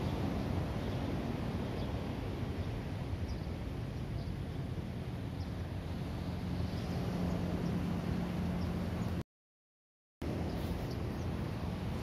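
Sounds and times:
ocean surf on rocks: 0.0 - 9.2.

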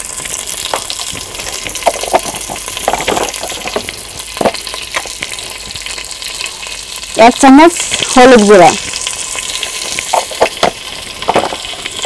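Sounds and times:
oil crackling: 0.0 - 12.0
spices sizzling in oil: 0.0 - 12.0.

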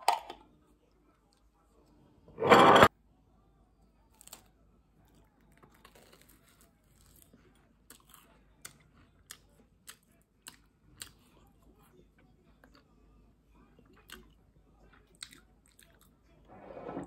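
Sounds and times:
crackling of crisp pastry crust: 4.0 - 9.5.

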